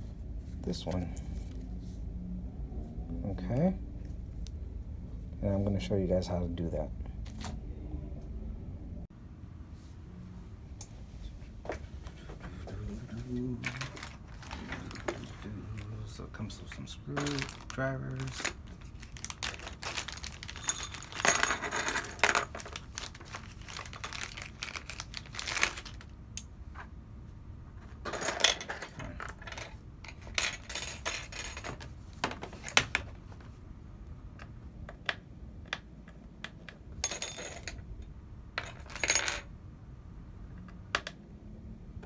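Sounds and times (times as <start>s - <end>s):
plastic bag crinkling: 13.6s - 15.3s, 17.2s - 21.3s, 22.4s - 26.1s
metal tools clinking: 20.0s - 22.8s.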